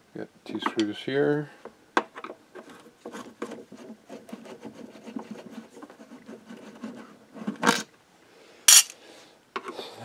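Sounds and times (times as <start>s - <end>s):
screwdriver clicking and scraping: 8.7s - 9.0s.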